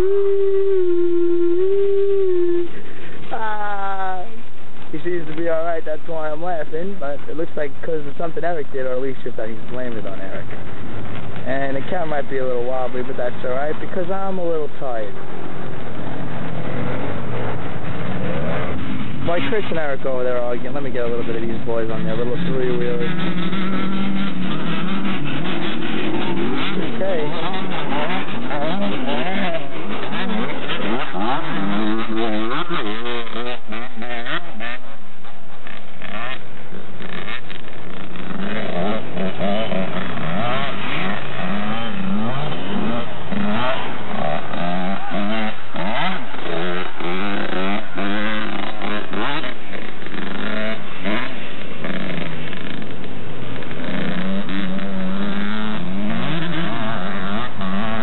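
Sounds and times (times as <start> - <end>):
motorcycle engines revving: 0.0 - 58.0.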